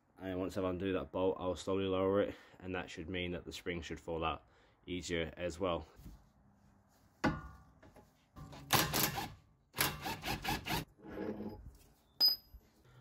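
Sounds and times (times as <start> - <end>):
power tool rapid mechanical bursts: 8.8 - 10.8.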